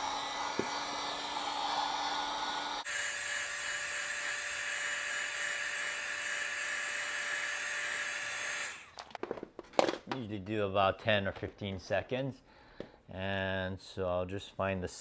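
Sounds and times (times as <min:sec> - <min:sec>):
heat gun blowing: 0:00.0 - 0:09.0.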